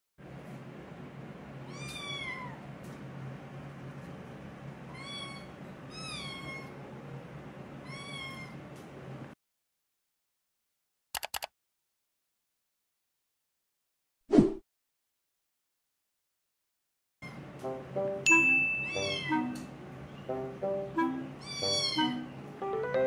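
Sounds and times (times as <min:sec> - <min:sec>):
kitten meowing: 0:01.7 - 0:02.6, 0:04.9 - 0:06.7, 0:07.8 - 0:08.6, 0:18.9 - 0:19.4, 0:21.4 - 0:22.3.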